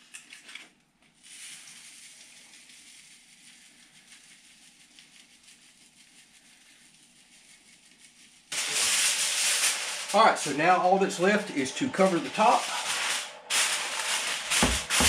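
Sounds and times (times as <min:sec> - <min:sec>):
patter of falling breadcrumbs: 0:00.0 - 0:10.3.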